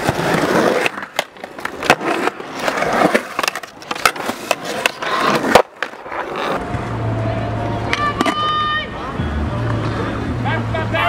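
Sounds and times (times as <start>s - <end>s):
skateboard clacks: 0.0s - 7.0s, 7.8s - 8.8s
skateboard wheels rolling on concrete: 0.0s - 11.0s.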